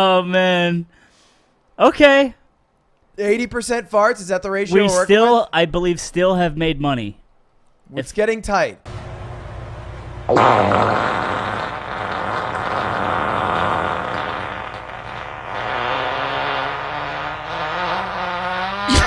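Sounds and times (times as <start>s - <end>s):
low hum: 8.9s - 12.3s
long fart noise: 10.3s - 19.0s.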